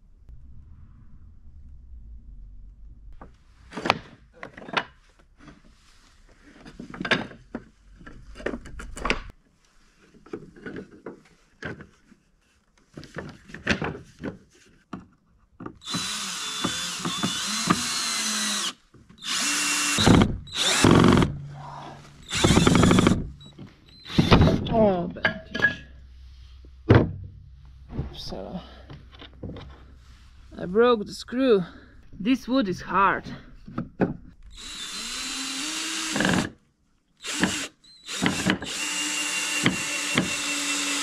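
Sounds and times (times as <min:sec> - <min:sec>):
power drill driving screws: 0:15.8 - 0:21.3, 0:22.2 - 0:24.6, 0:34.5 - 0:36.6, 0:37.2 - 0:41.0.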